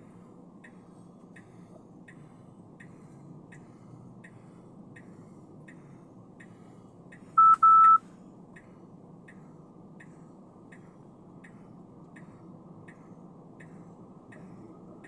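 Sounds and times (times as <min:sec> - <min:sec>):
faint road noise: 0:00.0 - 0:15.0
turn signal clicking: 0:00.6 - 0:15.0
electronic beeps: 0:07.4 - 0:08.0.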